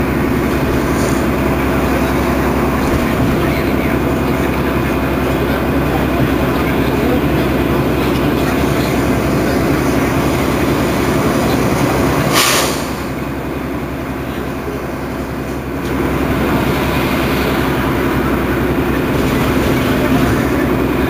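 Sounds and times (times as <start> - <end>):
bus engine idling: 0.0 - 21.0
air brake hiss: 12.2 - 13.1.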